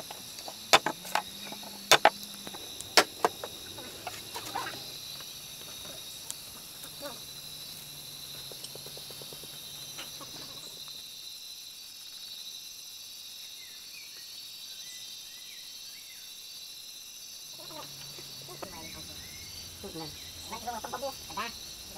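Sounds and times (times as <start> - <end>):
insects buzzing: 0.0 - 21.9
faint bird chirps: 17.5 - 21.8.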